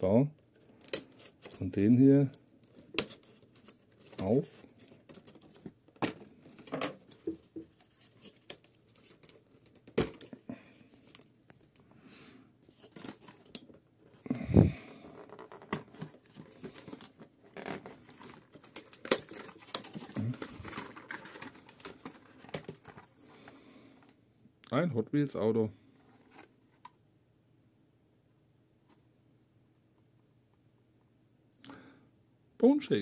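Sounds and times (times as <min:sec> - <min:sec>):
packaging crinkling and tearing: 0:12.7 - 0:23.5.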